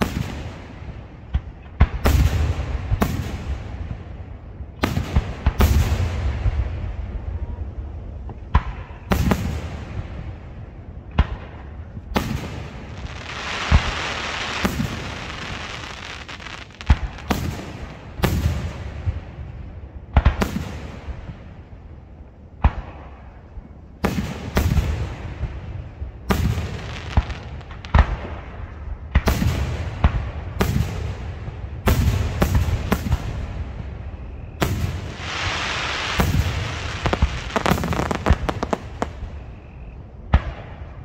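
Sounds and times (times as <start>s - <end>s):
fireworks bursts and booms: 0.0s - 41.0s
fireworks hiss: 12.2s - 18.9s, 26.3s - 28.0s, 34.6s - 39.9s.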